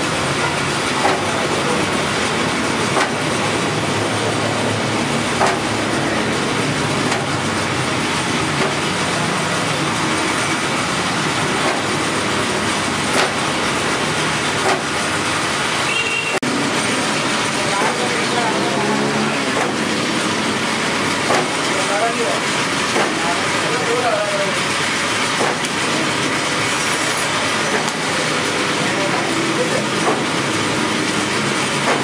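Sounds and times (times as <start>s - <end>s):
steady loud noise: 0.0s - 32.0s
spot welder snapping: 13.0s - 13.5s.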